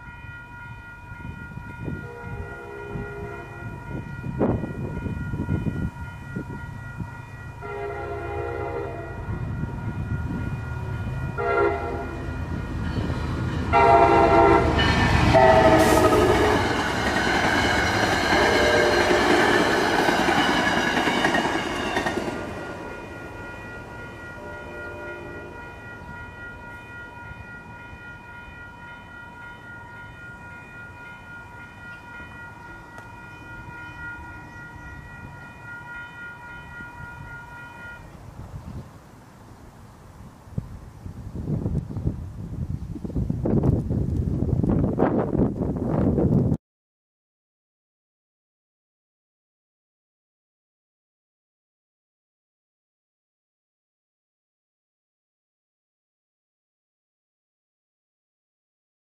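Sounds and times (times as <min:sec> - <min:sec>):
train horn blasts: 0:00.0 - 0:12.7, 0:13.7 - 0:20.0, 0:21.1 - 0:38.4
crossing warning bell ringing: 0:00.0 - 0:38.7
passing train rumble and rail noise: 0:00.0 - 0:46.6.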